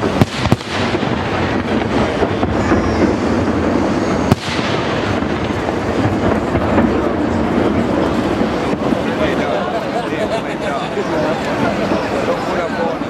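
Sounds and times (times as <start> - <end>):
firework bang: 0.0 - 9.9
background noise: 0.0 - 13.0.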